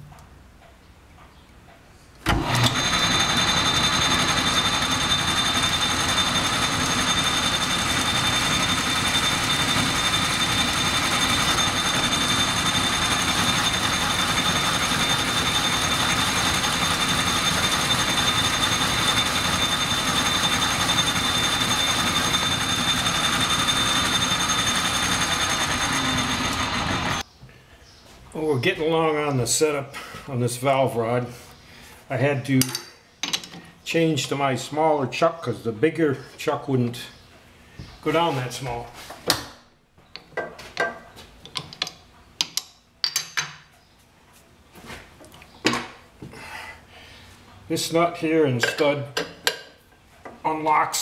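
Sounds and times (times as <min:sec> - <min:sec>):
metal lathe whirring: 0:02.3 - 0:27.2.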